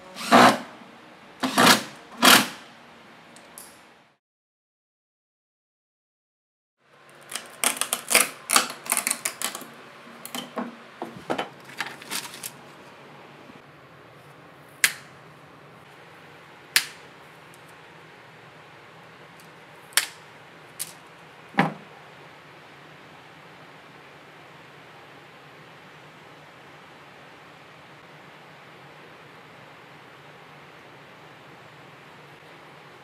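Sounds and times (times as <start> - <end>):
pliers snapping wooden sticks: 14.8 - 15.1, 16.7 - 17.6, 19.4 - 20.2.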